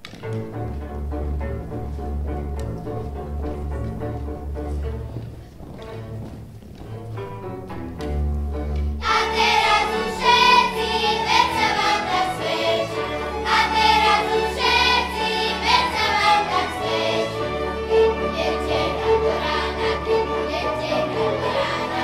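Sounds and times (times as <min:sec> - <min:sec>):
folk string band: 0:00.0 - 0:22.0
children's choir singing: 0:09.0 - 0:22.0.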